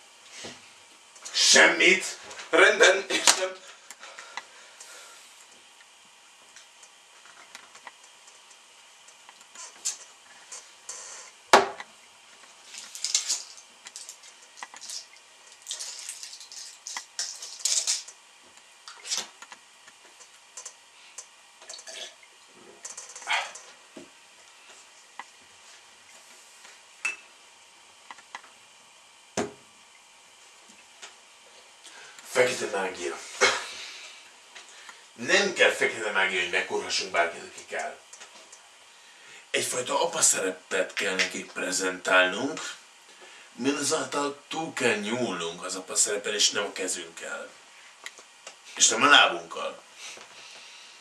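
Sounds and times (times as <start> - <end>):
objects clicking and clinking: 12.7 - 18.2.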